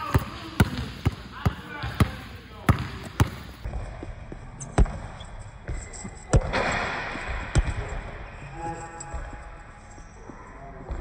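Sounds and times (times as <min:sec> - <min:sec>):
basketball bouncing on gym floor: 0:00.0 - 0:04.0, 0:04.7 - 0:06.6.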